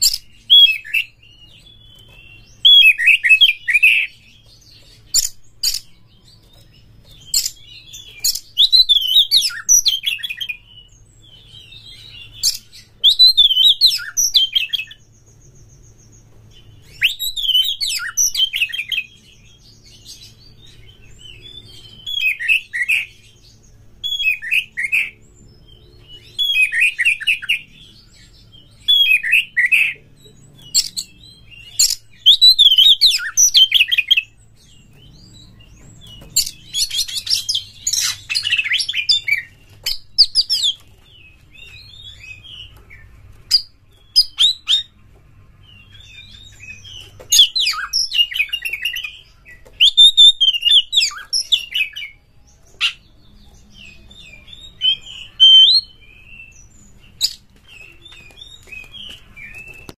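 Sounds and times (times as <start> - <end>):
bird singing whistled phrases: 30.7 - 34.2, 49.8 - 52.2, 53.8 - 57.4.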